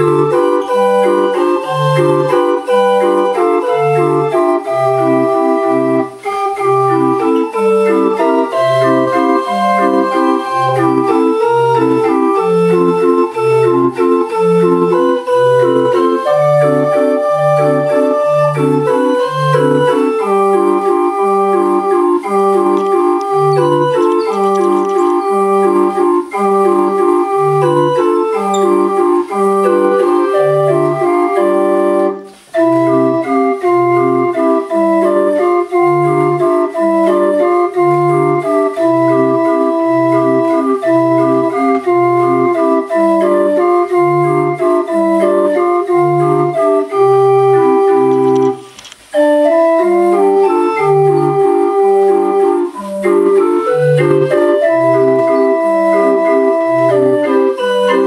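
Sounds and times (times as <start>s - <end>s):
street organ playing a tune: 0.0s - 58.0s.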